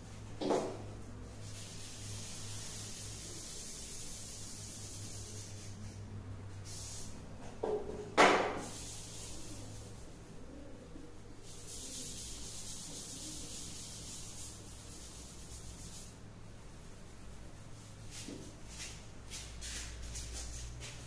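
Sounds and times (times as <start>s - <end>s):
duster scrubbing chalkboard: 0.4s - 10.5s, 11.4s - 16.2s, 16.8s - 21.0s
hand rubbing chalkboard: 0.4s - 16.2s, 16.8s - 21.0s.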